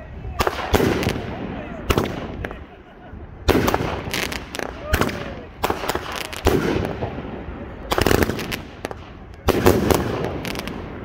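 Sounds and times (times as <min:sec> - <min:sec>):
fireworks bangs: 0:00.3 - 0:11.0.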